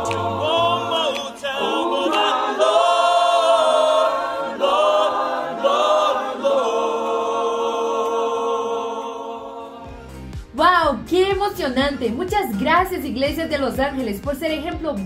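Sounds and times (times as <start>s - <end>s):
choir singing worship song: 0.0s - 10.5s.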